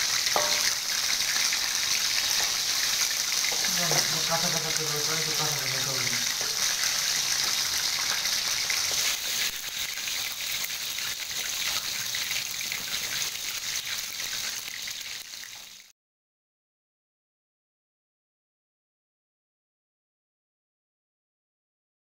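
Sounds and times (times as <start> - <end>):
hot oil sizzling: 0.0 - 15.9.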